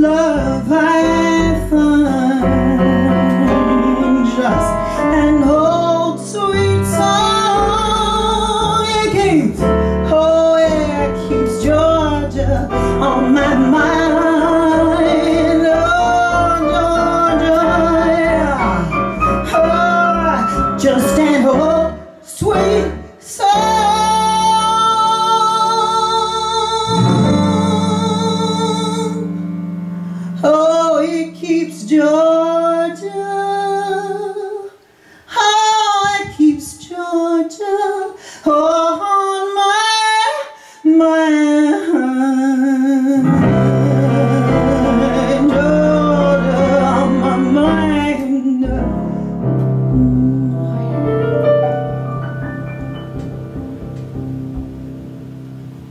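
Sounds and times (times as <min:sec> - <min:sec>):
woman singing a bluesy ballad: 0:00.0 - 0:29.4, 0:30.2 - 0:51.1
upright bass: 0:00.0 - 0:29.6, 0:43.3 - 0:55.9
keyboard: 0:00.0 - 0:32.5, 0:42.3 - 0:55.9.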